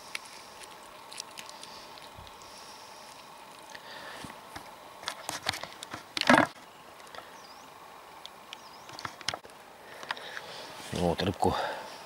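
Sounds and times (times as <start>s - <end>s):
small bird chirping: 6.7s - 7.8s, 8.5s - 9.0s.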